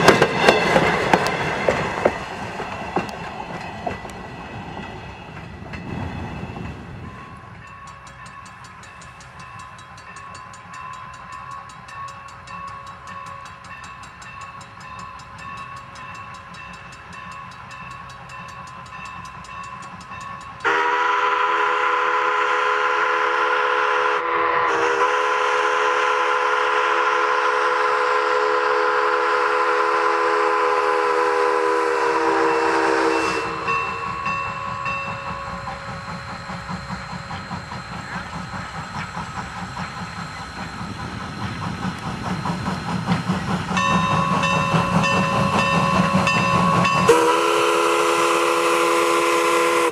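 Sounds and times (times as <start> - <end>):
steam locomotive exhaust chuffing: 0.0 - 49.9
multi-tone steam whistle: 20.6 - 39.2, 43.8 - 49.9.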